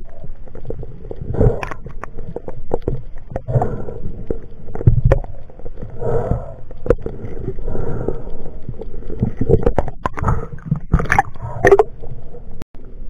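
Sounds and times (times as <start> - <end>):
low gurgling rumbles: 0.0 - 13.0
underwater clicks and knocks of gear: 1.4 - 3.5, 9.2 - 11.9.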